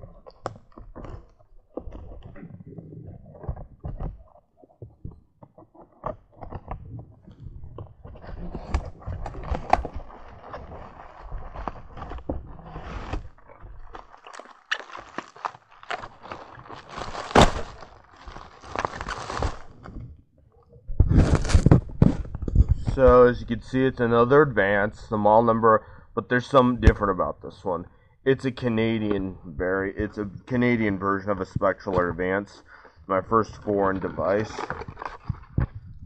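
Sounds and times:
cardboard packaging rustling: 7.8 - 20.0, 21.0 - 23.0, 33.5 - 36.0.

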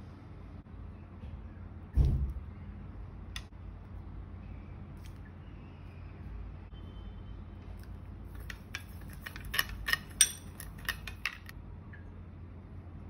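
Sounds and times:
spoon clinking against glass bowl: 8.4 - 11.5.

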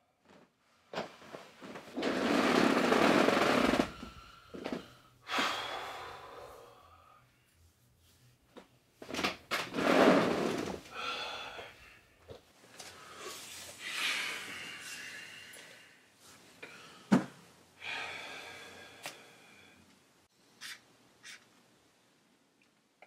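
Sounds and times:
man breathing heavily and sighing: 3.7 - 7.4, 10.8 - 19.9.

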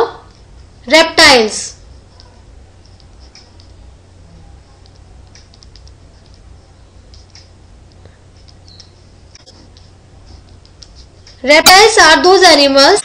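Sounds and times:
low electrical hum: 0.0 - 13.0
computer mouse clicks: 2.2 - 3.8, 4.8 - 6.5, 7.1 - 11.4.

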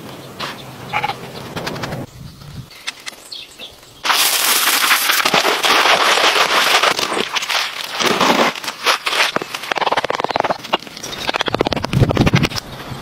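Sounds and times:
wet concrete crackling and scraping: 4.1 - 12.7.

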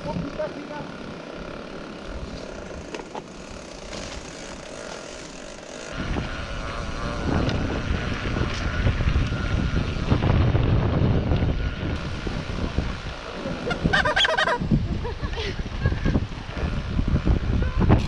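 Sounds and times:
bike clicks and rattles: 0.0 - 14.5
mountain bike on dirt trail: 0.0 - 18.0
wind buffeting microphone: 5.9 - 18.0.

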